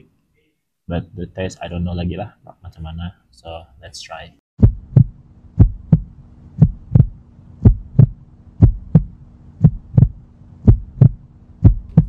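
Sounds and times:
low steady hum: 0.9s - 12.0s
heartbeat thumps: 4.6s - 12.0s.

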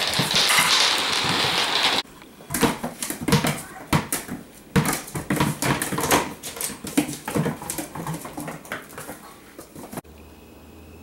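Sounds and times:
bouncing ball: 0.0s - 9.2s
paws clicking on vinyl floor: 3.0s - 10.0s.

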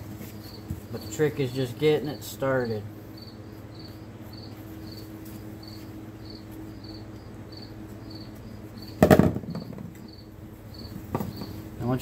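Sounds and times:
low steady hum: 0.0s - 12.0s
cricket chirping: 3.1s - 11.7s.

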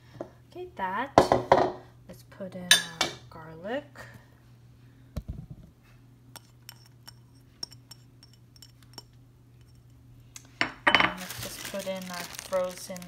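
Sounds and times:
dish and utensil clinking on pot: 2.7s - 3.2s.

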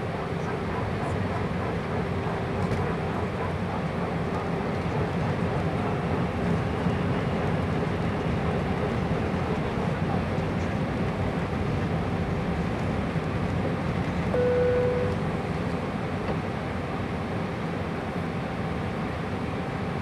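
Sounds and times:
aircraft engine rumble: 0.0s - 20.0s
short steady tone: 14.4s - 15.3s.

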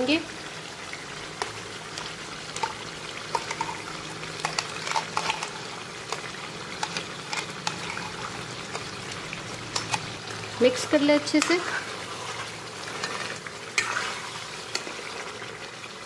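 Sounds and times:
gravy bubbling and sizzling in oil: 0.0s - 16.0s
paste spooned into pan: 11.0s - 15.4s.

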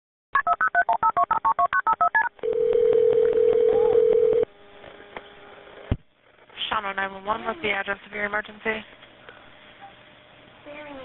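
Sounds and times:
touch-tone keypad beeps: 0.4s - 2.3s
telephone ringback tone: 0.4s - 4.5s.

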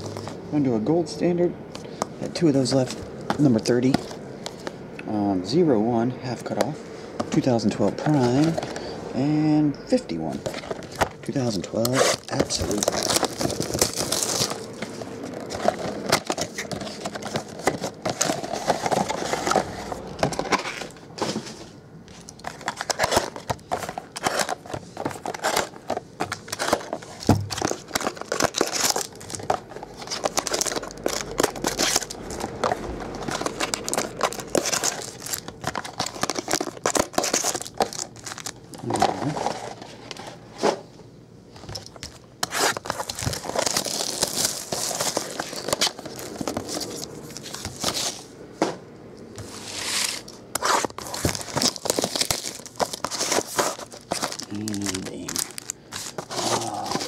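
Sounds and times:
plastic wrap crinkling and tearing: 10.4s - 21.0s, 22.2s - 39.8s, 41.8s - 48.2s, 49.7s - 57.0s.

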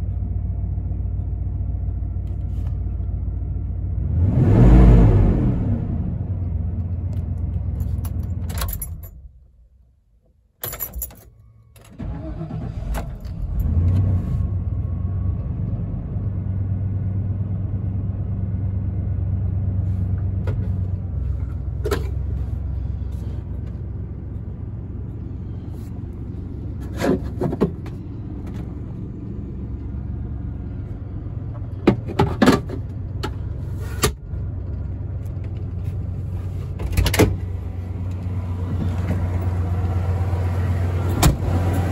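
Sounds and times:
car engine switching off: 11.9s - 15.8s
car engine idling: 14.6s - 41.9s.

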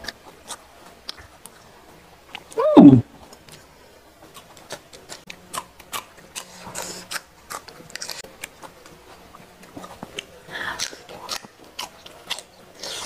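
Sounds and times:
person chewing wetly: 3.2s - 13.0s.

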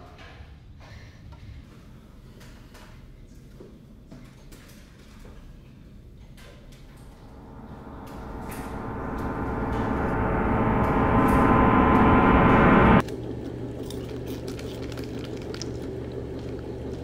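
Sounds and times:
low steady hum: 6.8s - 17.0s
gong-like metallic drone: 6.9s - 13.0s.

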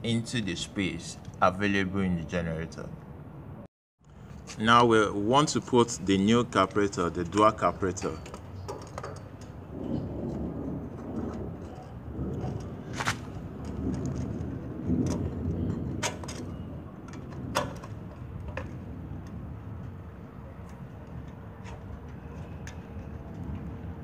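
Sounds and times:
metal clicks and knocks: 6.8s - 20.0s
low rumble: 9.4s - 21.4s.

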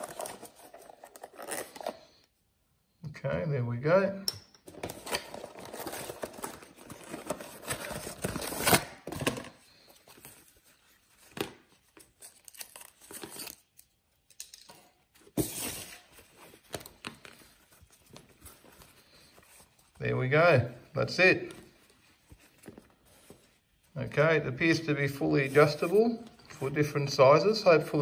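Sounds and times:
cardboard packaging rustling: 0.0s - 2.2s, 4.7s - 14.0s, 15.1s - 20.0s.

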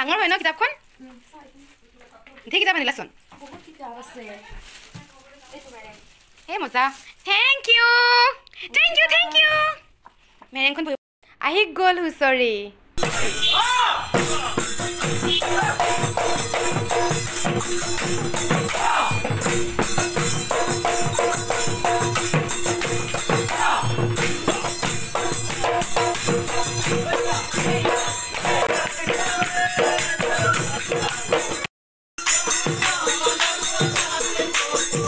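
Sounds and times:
drum beaten in fast rhythm: 13.0s - 35.0s
jingling hand cymbals: 13.0s - 35.0s.

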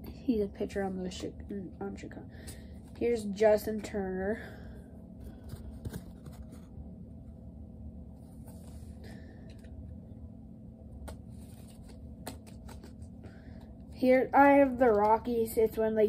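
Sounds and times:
faint background hum: 0.0s - 16.0s
trading cards rustling: 11.1s - 13.8s
cards clicking together: 11.9s - 13.0s.

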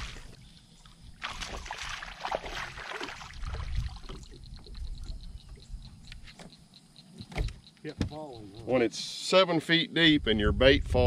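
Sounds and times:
water splashing and churning: 0.0s - 5.2s.

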